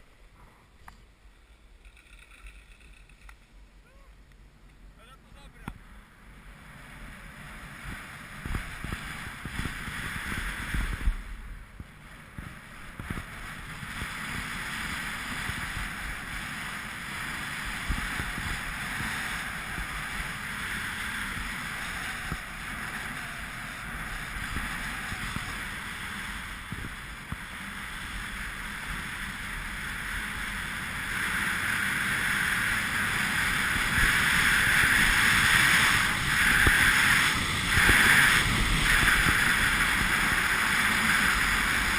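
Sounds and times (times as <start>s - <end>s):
skis scraping over snow: 6.4s - 41.9s
wind buffeting microphone: 7.7s - 25.8s, 33.0s - 41.9s.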